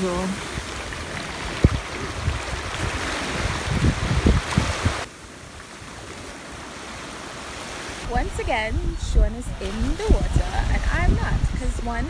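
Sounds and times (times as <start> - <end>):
wind buffeting microphone: 0.0 - 5.1, 8.0 - 12.0
sea surf washing ashore: 0.0 - 12.0.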